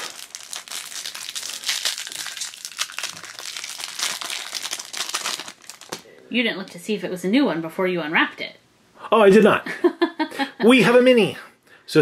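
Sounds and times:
plastic wrapper crinkling: 0.0s - 6.8s.

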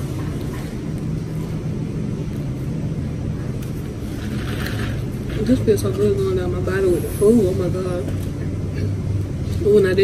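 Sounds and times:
low droning hum: 0.0s - 10.0s.

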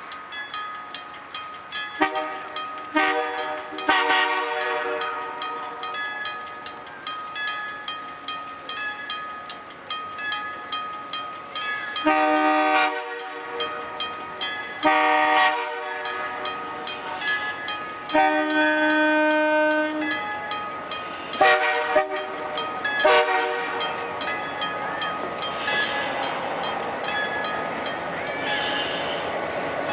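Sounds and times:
crossing signal bell clanging: 0.0s - 29.9s
locomotive air horn blasts: 2.0s - 5.0s, 12.0s - 13.4s, 14.8s - 15.8s, 18.1s - 20.0s, 21.4s - 22.3s, 23.0s - 23.8s.

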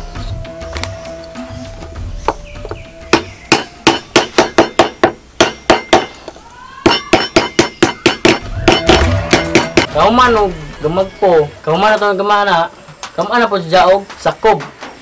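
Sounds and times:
hammer tapping on metal: 2.3s - 6.2s, 6.9s - 10.0s.

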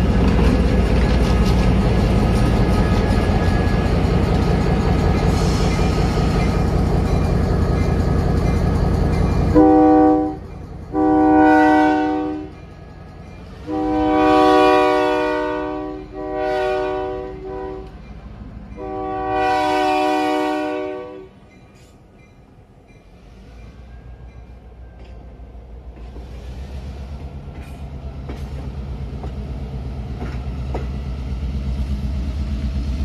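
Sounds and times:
diesel locomotive engine: 0.0s - 33.0s
train wheels rumbling: 0.0s - 33.0s
locomotive air horn blasts: 9.5s - 12.6s, 13.6s - 18.0s, 18.8s - 21.4s.

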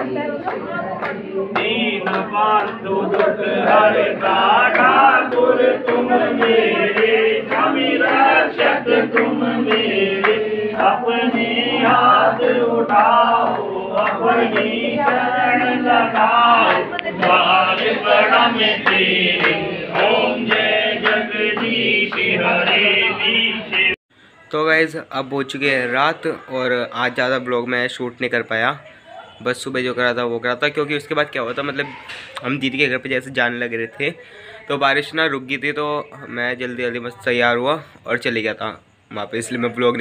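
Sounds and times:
group singing a hymn: 0.0s - 24.0s.

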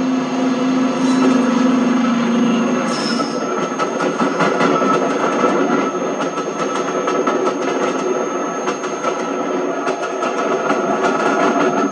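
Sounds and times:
train rumbling past: 0.0s - 11.9s
train wheels clicking: 2.9s - 11.9s.

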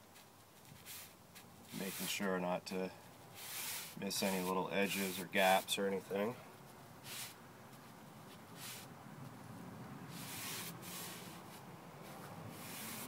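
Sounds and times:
paintbrush swishing on wood: 0.2s - 2.4s, 3.4s - 5.8s, 10.1s - 13.0s.

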